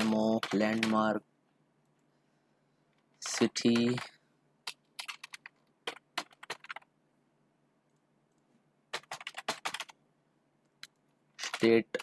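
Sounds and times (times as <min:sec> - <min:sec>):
computer keyboard typing: 0:00.0 - 0:01.2, 0:03.2 - 0:06.9, 0:08.3 - 0:10.0, 0:10.8 - 0:12.0.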